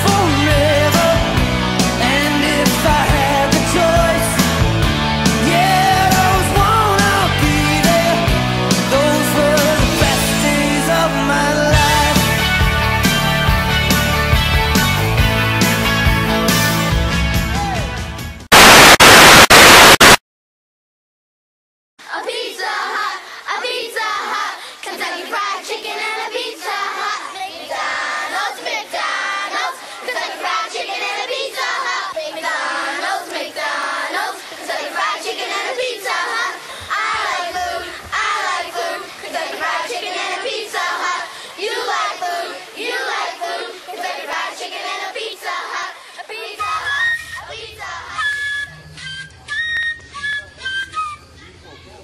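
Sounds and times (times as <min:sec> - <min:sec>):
children singing: 0:22.0 - 0:48.2.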